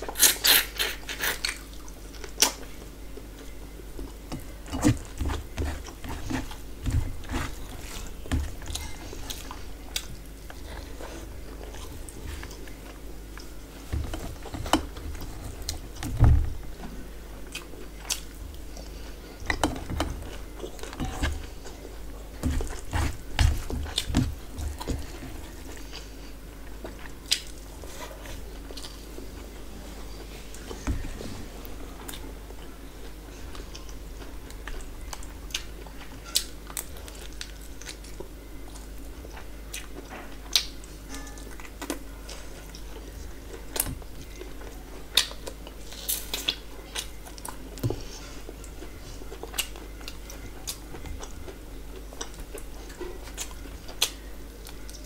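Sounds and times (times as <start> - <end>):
chewing and biting: 48.5 - 55.0.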